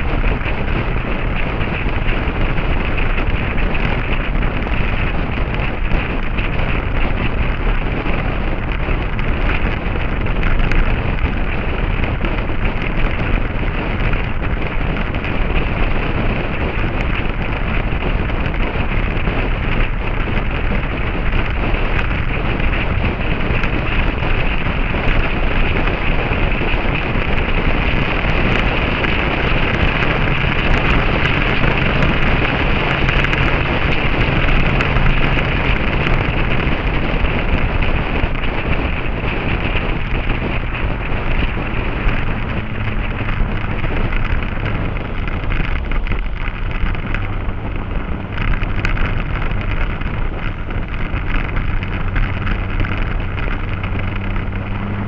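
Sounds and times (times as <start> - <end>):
motorcycle engine: 0.0 - 55.0
wind buffeting microphone: 0.0 - 55.0.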